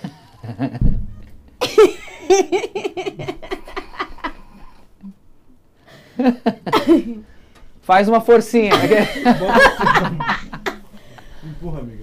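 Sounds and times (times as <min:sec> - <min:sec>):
hearty laughter: 0:00.0 - 0:00.8, 0:01.6 - 0:04.9, 0:06.0 - 0:07.3, 0:08.7 - 0:11.4.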